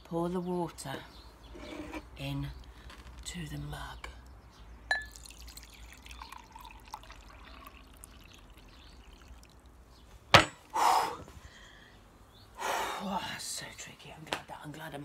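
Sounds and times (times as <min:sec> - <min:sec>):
water trickling into a mug: 0:04.9 - 0:10.1
blown-out breath: 0:10.6 - 0:12.0.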